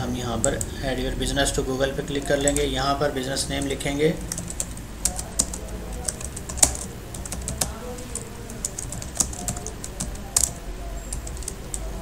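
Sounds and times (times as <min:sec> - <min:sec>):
computer keyboard typing: 0:02.1 - 0:02.7, 0:03.6 - 0:12.0.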